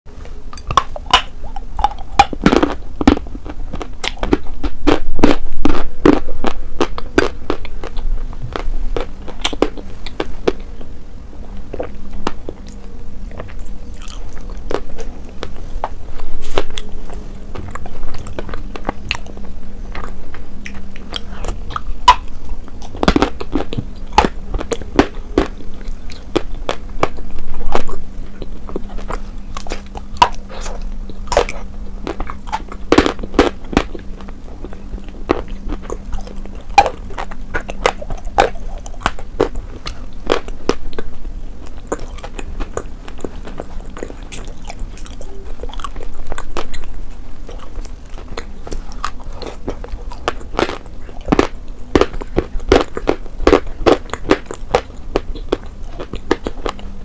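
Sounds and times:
person chewing meat: 0:00.2 - 0:57.0
mouth clicks and smacks: 0:00.5 - 0:10.7.

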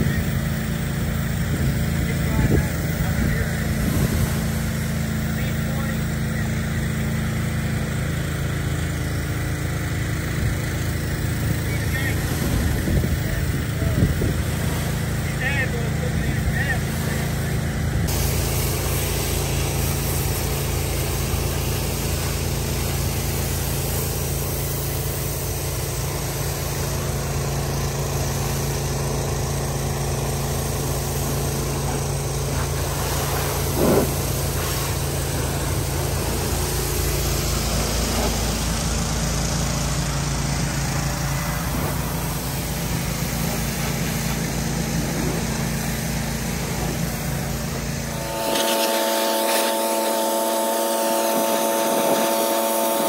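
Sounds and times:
pressure washer engine drone: 0:00.0 - 0:53.0
water spray hissing: 0:03.6 - 0:05.4, 0:11.7 - 0:13.4, 0:16.8 - 0:28.9, 0:29.7 - 0:39.3, 0:41.3 - 0:53.0.

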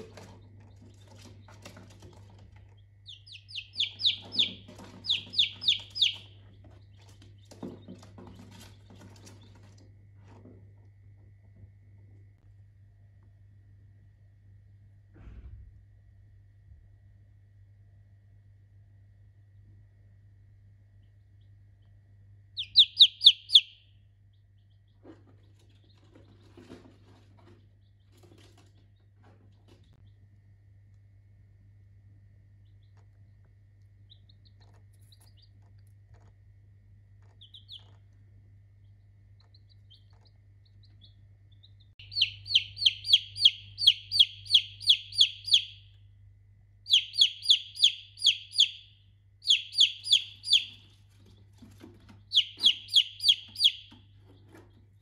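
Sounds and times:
chicks peeping: 0:00.0 - 0:09.9, 0:21.2 - 0:30.1, 0:32.6 - 0:36.4, 0:37.2 - 0:46.0, 0:46.9 - 0:55.0.

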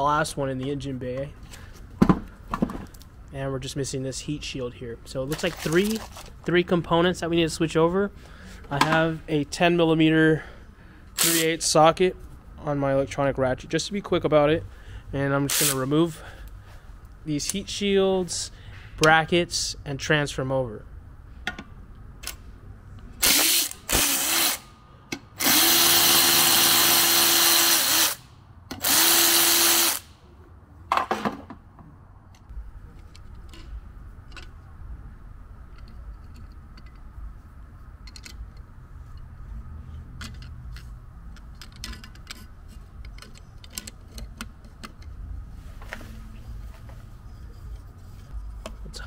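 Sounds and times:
electric ratchet running: 0:23.2 - 0:24.7, 0:25.4 - 0:30.1.

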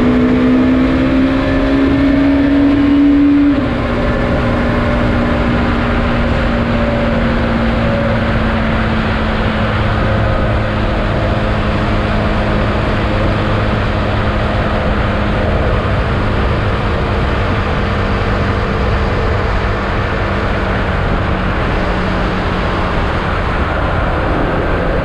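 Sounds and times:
motorcycle engine cruising: 0:00.0 - 0:25.0
wind: 0:00.0 - 0:25.0.

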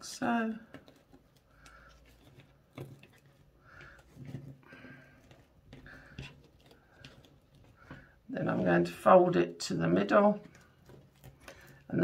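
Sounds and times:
stiff fabric being folded by hand: 0:00.0 - 0:12.0
small clicks and crinkly rustles: 0:00.6 - 0:08.2, 0:10.3 - 0:12.0.

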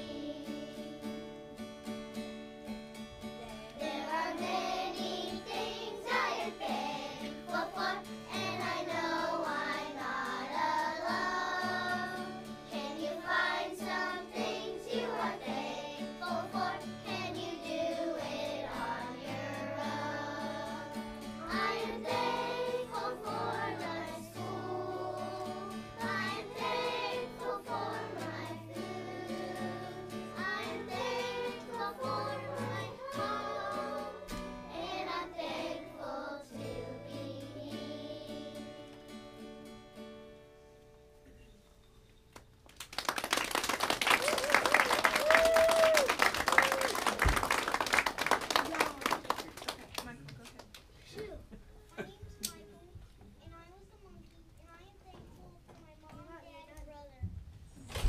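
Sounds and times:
children singing in unison: 0:00.0 - 0:01.2, 0:03.8 - 0:39.0.

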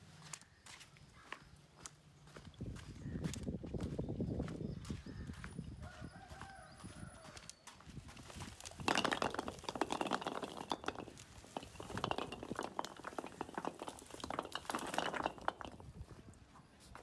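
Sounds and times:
coconuts clattering on stone: 0:08.2 - 0:16.4.

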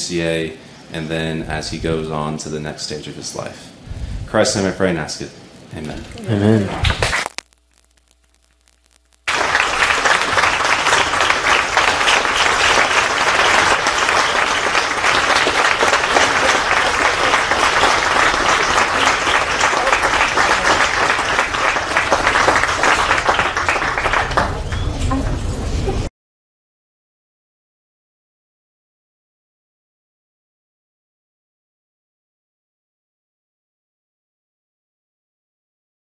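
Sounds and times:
crowd applauding: 0:09.2 - 0:25.5.

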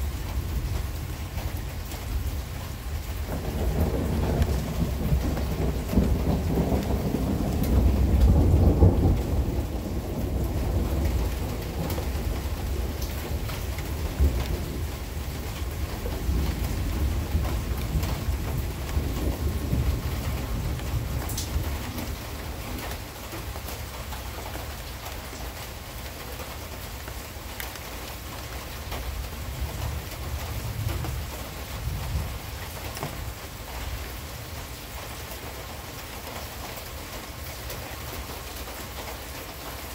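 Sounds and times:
steady rain: 0:00.0 - 0:39.9
ticks of raindrops: 0:00.0 - 0:39.9
thunder rumbling: 0:02.1 - 0:24.9.

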